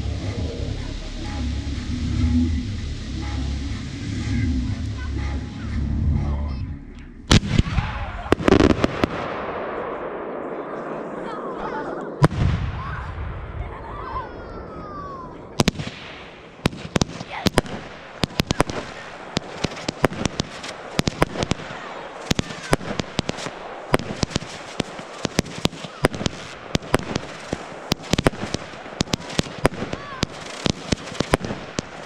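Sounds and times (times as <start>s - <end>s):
fireworks bangs and crackles: 7.3s - 32.0s.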